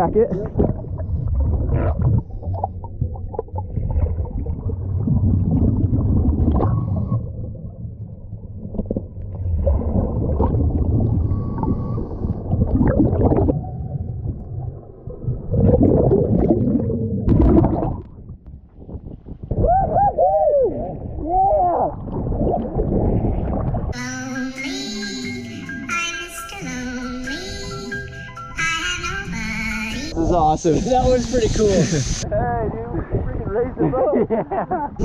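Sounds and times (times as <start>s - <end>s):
low rumble: 0.0s - 24.0s
air bubbling underwater: 0.3s - 24.0s.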